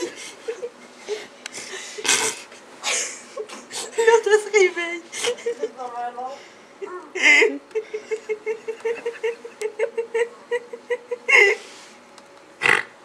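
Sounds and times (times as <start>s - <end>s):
person laughing: 0.0s - 4.0s, 6.8s - 11.7s.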